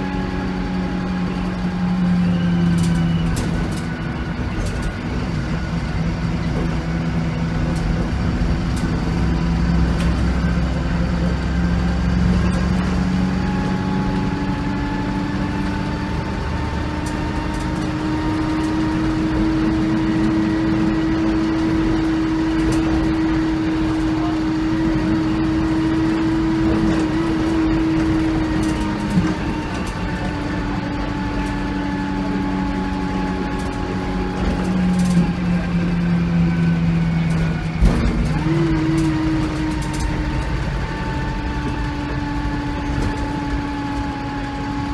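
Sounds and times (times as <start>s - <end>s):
bus diesel engine running: 0.0s - 44.9s
faint engine whine: 0.0s - 44.9s
road rumble: 0.0s - 44.9s.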